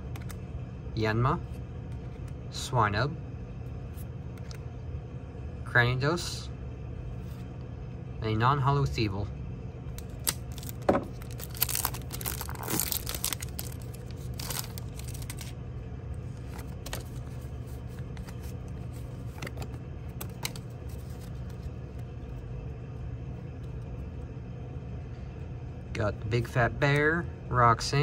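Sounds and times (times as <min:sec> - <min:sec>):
steady low hum: 0:00.0 - 0:28.0
cards sliding with soft clicks: 0:03.9 - 0:04.6, 0:16.4 - 0:22.0
foil wrapper tearing: 0:10.0 - 0:15.5.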